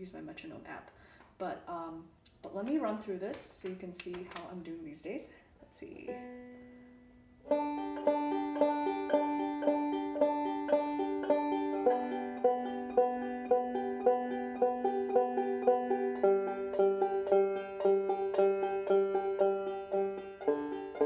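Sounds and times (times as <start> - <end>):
banjo plucked notes: 5.9 - 21.0.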